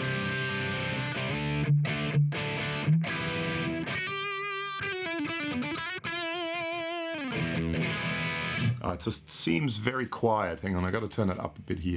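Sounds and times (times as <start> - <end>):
distorted electric guitar: 0.0 - 8.8.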